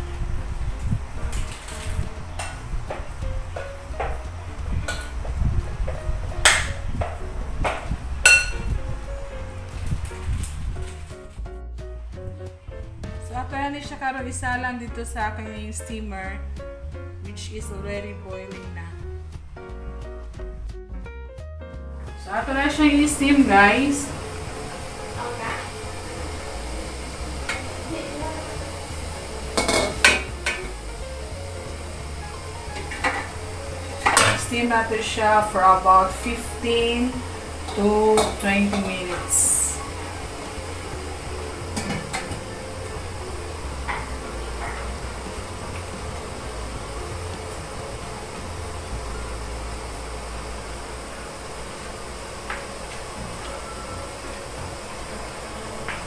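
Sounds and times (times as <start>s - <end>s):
background music: 0.0s - 56.0s
low hum: 22.2s - 56.0s.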